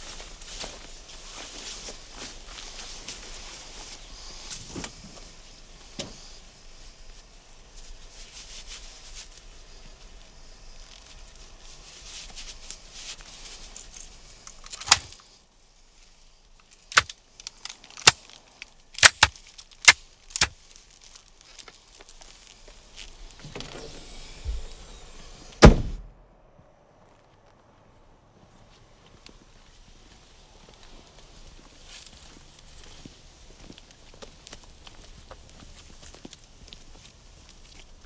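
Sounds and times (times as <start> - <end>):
soft rustling: 0.0 - 25.4
sharp metallic clicks: 14.4 - 15.3, 16.6 - 20.6.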